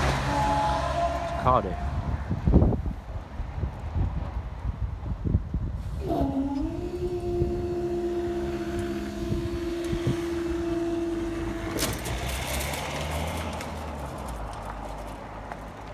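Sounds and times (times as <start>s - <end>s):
barrier motor whine: 5.8s - 13.8s.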